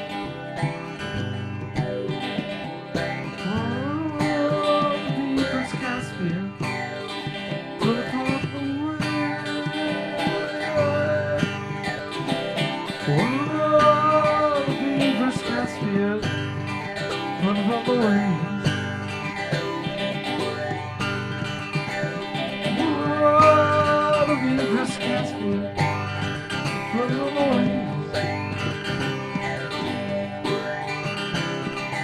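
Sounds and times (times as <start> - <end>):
guitar: 0.0 - 32.0
live country bluegrass band: 7.2 - 20.2, 21.1 - 30.6.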